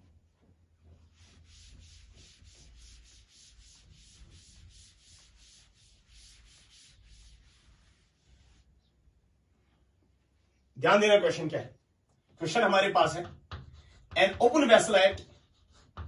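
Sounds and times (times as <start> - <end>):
duster wiping chalkboard: 0.2 - 8.9, 12.8 - 16.0.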